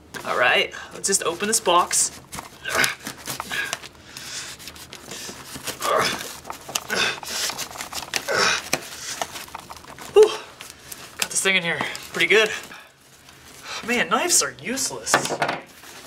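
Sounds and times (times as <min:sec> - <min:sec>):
knife cutting packing tape: 0:02.3 - 0:10.2.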